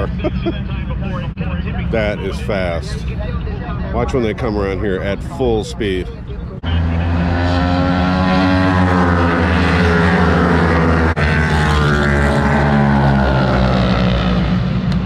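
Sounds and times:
racing motorcycle engines revving: 0:06.6 - 0:15.0.

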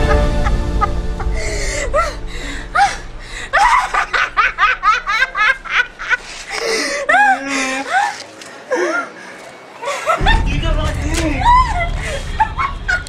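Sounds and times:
boy laughing: 0:02.8 - 0:09.2, 0:11.1 - 0:13.0.

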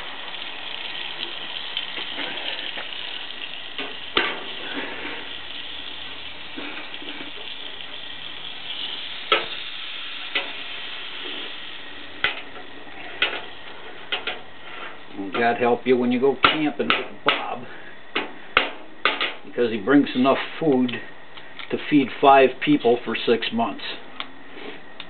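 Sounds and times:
wood fire crackling: 0:00.0 - 0:25.0
sharp pops from fire: 0:03.7 - 0:05.3, 0:08.9 - 0:09.7, 0:10.3 - 0:11.5, 0:12.2 - 0:12.6, 0:16.4 - 0:19.5.

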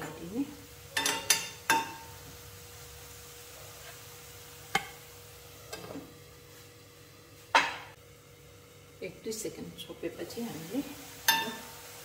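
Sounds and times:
metal cookware clinking: 0:00.9 - 0:02.1, 0:11.2 - 0:11.7
metal lid clattering on wok: 0:01.0 - 0:02.0.

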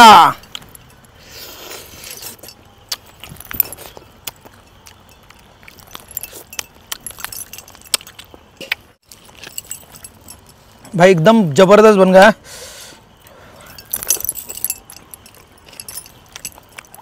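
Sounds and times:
metal bracelets jangling: 0:00.4 - 0:01.2, 0:02.2 - 0:11.0, 0:13.6 - 0:17.0
person chewing: 0:00.4 - 0:10.8, 0:13.6 - 0:17.0.

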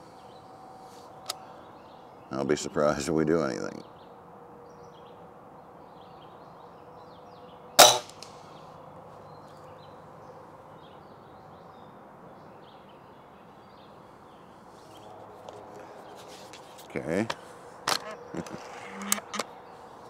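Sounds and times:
air rifle shot: 0:07.8 - 0:08.4.

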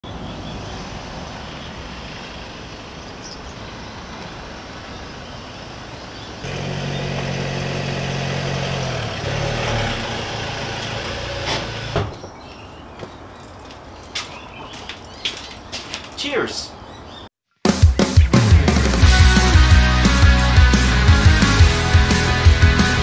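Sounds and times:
street background: 0:00.0 - 0:23.0
car engine running: 0:05.6 - 0:12.0.

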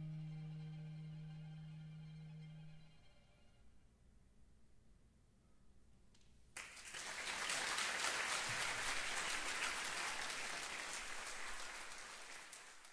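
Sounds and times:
audience applause: 0:06.6 - 0:12.9.

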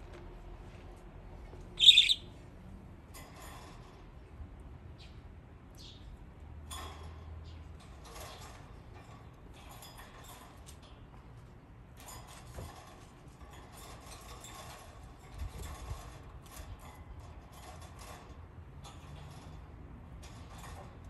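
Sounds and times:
budgerigars chattering: 0:01.8 - 0:02.3.

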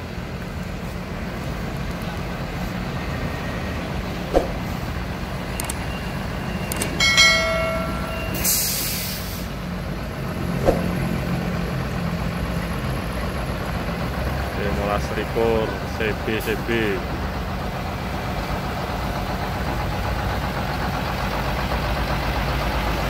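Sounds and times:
diesel truck engine running: 0:00.0 - 0:23.0
short clicks: 0:05.6 - 0:05.8
short pitched tone: 0:07.0 - 0:09.1
air brake hiss: 0:08.4 - 0:09.6.

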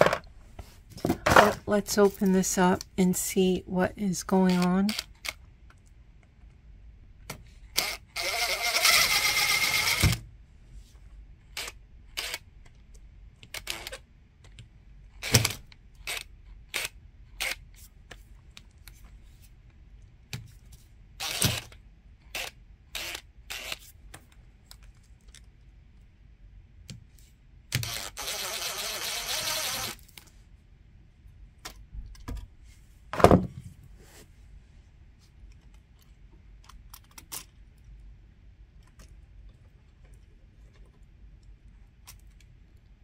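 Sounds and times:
cordless drill spinning: 0:07.8 - 0:10.2, 0:11.6 - 0:12.4, 0:13.5 - 0:14.0, 0:21.2 - 0:23.9, 0:27.7 - 0:30.1.

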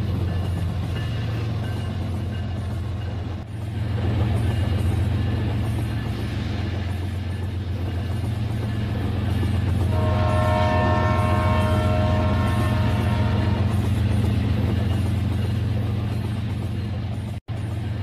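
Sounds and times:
toy train horn: 0:09.9 - 0:13.6.

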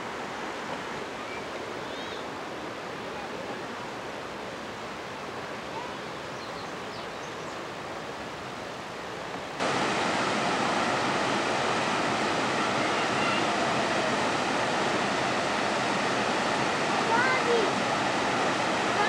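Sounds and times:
water rushing over rocks: 0:08.3 - 0:19.0.

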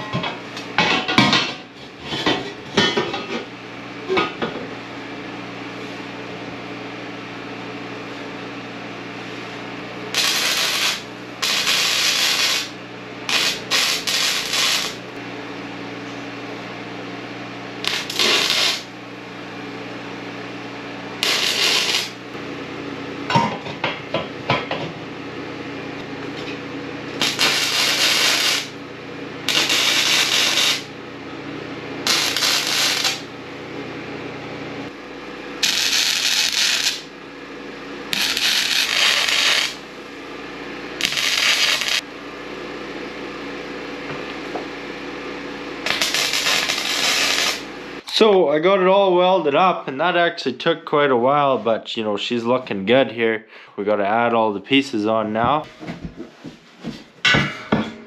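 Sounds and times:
arc welding crackling: 0:09.8 - 0:15.2, 0:17.7 - 0:19.1, 0:21.0 - 0:22.4, 0:26.2 - 0:31.0, 0:32.0 - 0:33.3, 0:34.9 - 0:37.2, 0:38.0 - 0:40.0, 0:40.9 - 0:42.1, 0:45.6 - 0:48.0.

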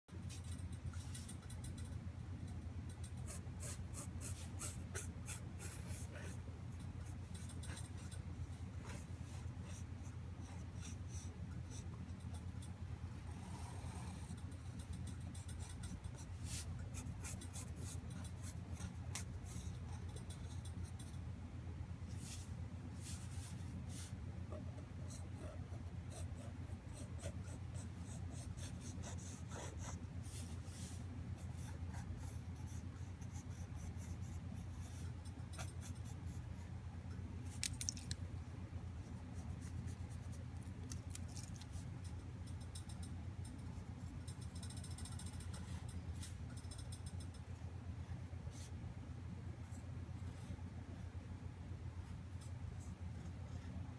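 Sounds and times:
steady low hum: 0:00.1 - 0:53.9
pencil scratching on paper: 0:03.2 - 0:12.4, 0:13.5 - 0:21.1, 0:23.0 - 0:36.5.

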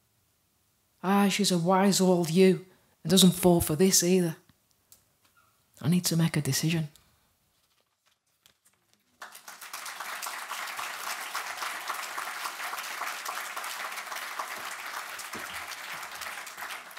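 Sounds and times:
audience applauding: 0:09.1 - 0:16.9.

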